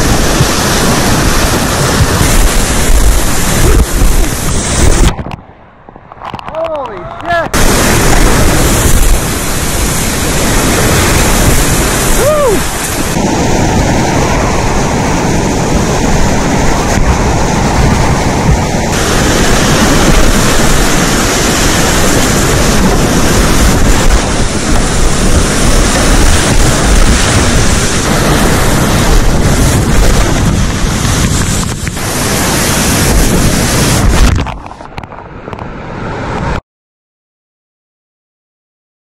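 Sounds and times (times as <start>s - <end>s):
whitewater rapids rushing: 0.0s - 5.2s, 6.6s - 36.6s
wind buffeting microphone: 0.0s - 36.6s
person whooping: 12.1s - 12.8s.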